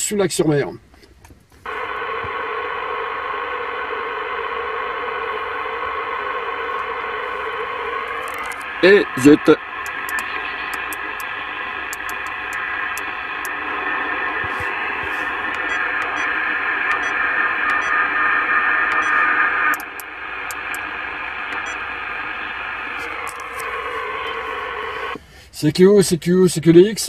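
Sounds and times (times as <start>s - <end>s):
faint steady radio whistles: 1.6s - 25.4s
radio band noise hiss: 1.6s - 25.8s
radio channel knob clicking: 5.6s - 8.8s, 9.8s - 17.9s.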